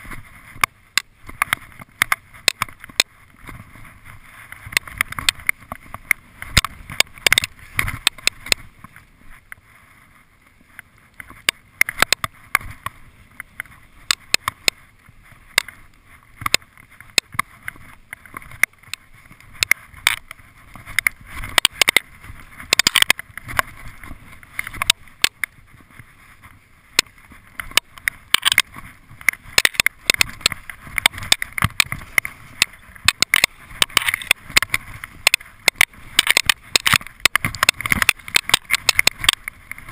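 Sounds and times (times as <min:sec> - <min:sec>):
skis hissing through powder snow: 0:08.4 - 0:11.1, 0:23.4 - 0:37.5.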